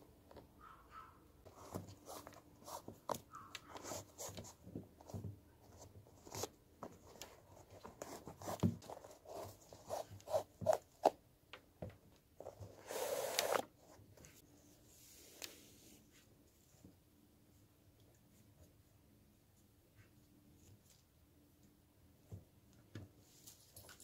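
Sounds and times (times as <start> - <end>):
shoelace rubbing in eyelets: 9.2 - 10.8, 12.8 - 13.7
shoelace zipping out: 12.8 - 13.7.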